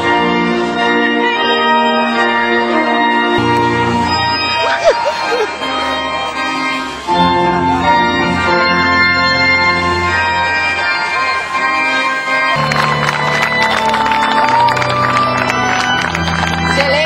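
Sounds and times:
organ playing held chords: 0.0 - 17.0
people clapping: 12.4 - 17.0.

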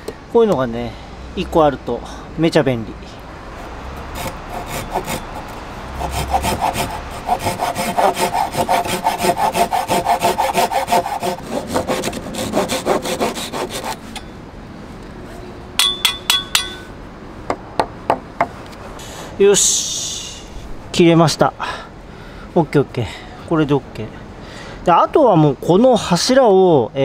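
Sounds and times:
hand saw cutting wood: 4.1 - 14.3.

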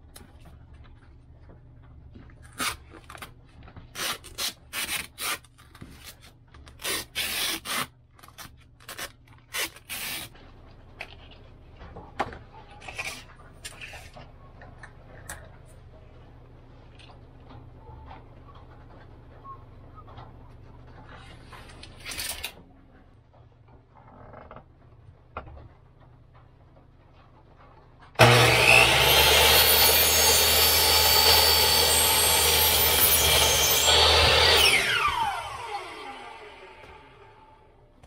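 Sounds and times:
saw blade cutting window blind: 9.0 - 10.4, 28.2 - 37.4
miter saw running: 28.2 - 37.5.

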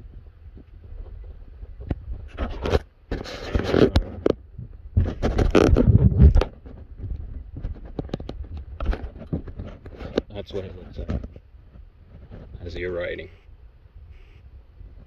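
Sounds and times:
phone microphone handling noise: 0.5 - 13.5.

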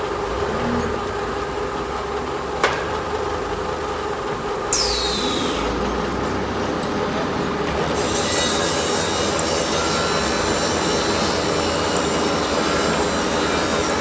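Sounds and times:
glue spreader machine running: 3.8 - 14.0
high hiss: 4.7 - 5.8.

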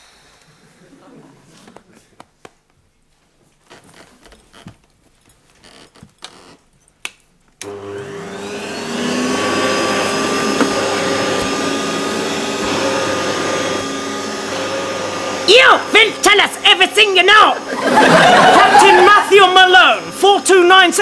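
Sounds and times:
faint knocks and rustles: 1.5 - 6.9
vacuum cleaner motor whining: 7.6 - 21.0.

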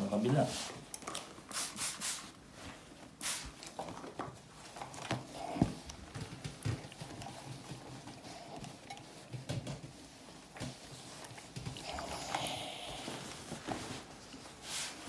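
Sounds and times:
fabric rustling: 2.3 - 15.0.

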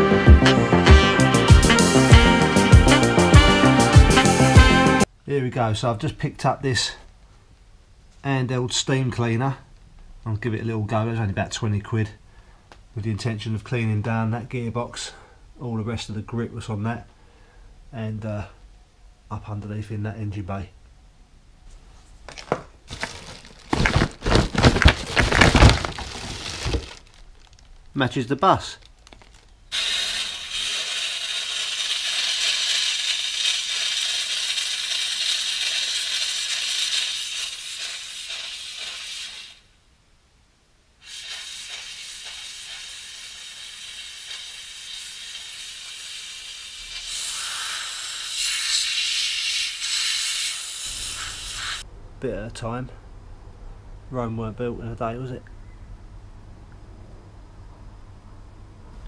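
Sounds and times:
cardboard box rustling and knocking: 22.3 - 27.0
plastic wrapping crinkling: 22.3 - 29.8
steam cleaner hissing: 29.7 - 39.6, 41.0 - 51.8.

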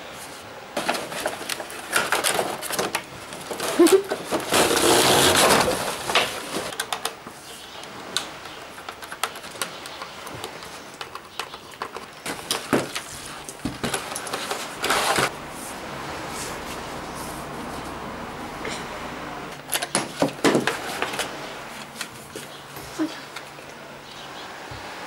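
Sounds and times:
packaging clicks and rustles: 0.8 - 7.3, 8.2 - 15.3.

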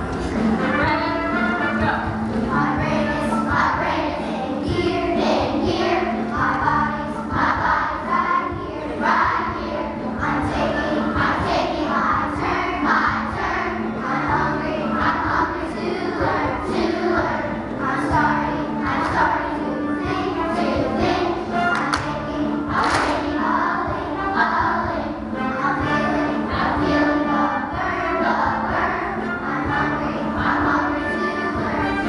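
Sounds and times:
children singing together: 2.3 - 32.0.

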